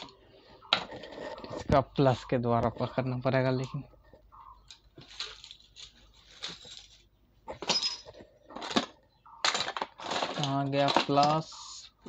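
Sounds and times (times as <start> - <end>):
metal hand tools clattering: 7.6 - 11.4.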